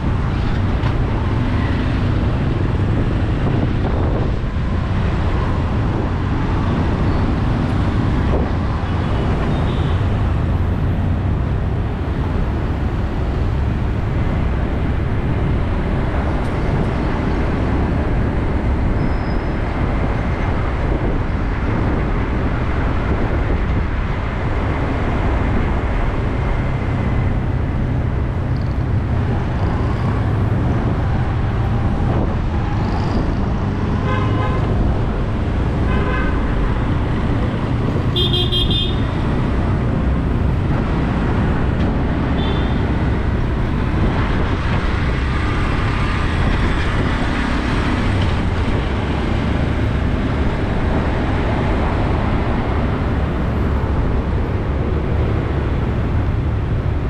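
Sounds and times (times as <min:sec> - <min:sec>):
city traffic noise: 0:00.0 - 0:57.0
vehicle horns honking: 0:34.0 - 0:34.7, 0:38.1 - 0:39.1, 0:42.4 - 0:42.8.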